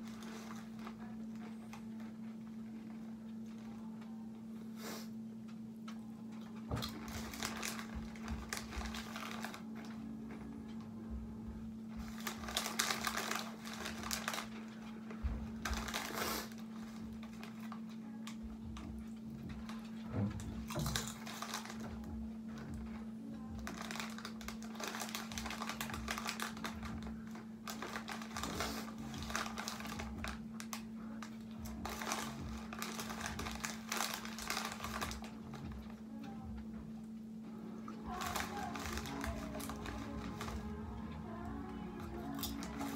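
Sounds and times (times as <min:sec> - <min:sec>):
chip bag crinkling: 0:00.0 - 0:04.0, 0:06.4 - 0:10.9, 0:11.8 - 0:18.5, 0:20.6 - 0:36.0, 0:37.9 - 0:42.9
steady low hum: 0:00.0 - 0:42.9
chips crunching: 0:06.4 - 0:10.5, 0:12.0 - 0:18.4, 0:20.6 - 0:22.2, 0:23.6 - 0:35.9, 0:38.0 - 0:42.9.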